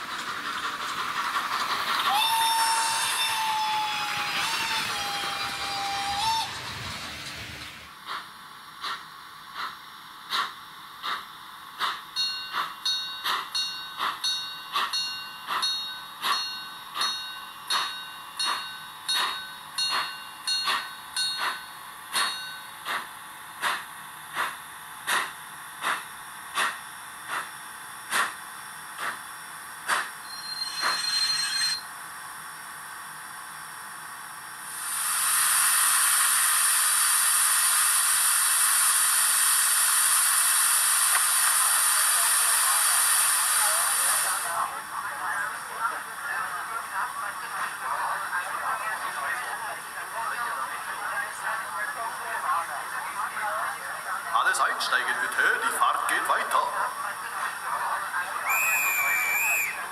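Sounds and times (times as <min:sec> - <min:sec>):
steam hiss: 0:00.0 - 0:14.2, 0:22.9 - 0:27.5, 0:34.6 - 0:44.8
steam locomotive exhaust chuffs: 0:00.0 - 0:31.4, 0:32.6 - 0:44.8.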